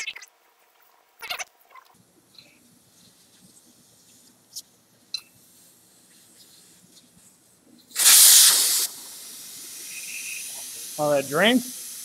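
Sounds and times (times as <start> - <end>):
air hissing from tyre valve: 7.9 - 12.0.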